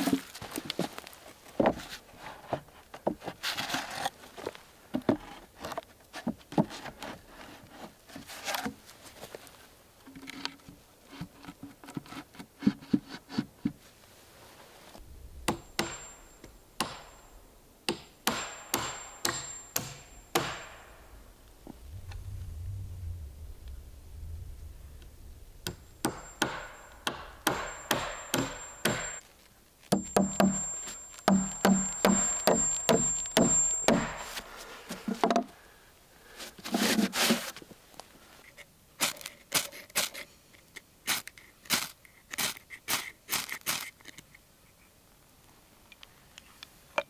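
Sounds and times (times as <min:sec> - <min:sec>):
sharp knocks with high ring: 0:15.5 - 0:21.2, 0:25.7 - 0:29.2, 0:30.0 - 0:34.4
wood scraping: 0:36.4 - 0:37.6.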